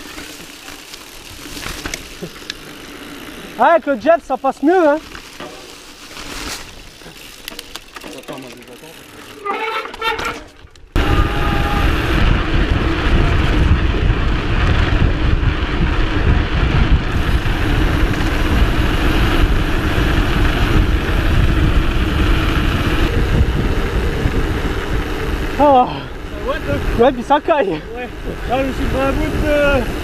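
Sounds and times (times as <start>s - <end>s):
tyres humming on road: 0.0s - 10.0s, 10.8s - 30.0s
wind rush on microphone: 10.9s - 30.0s.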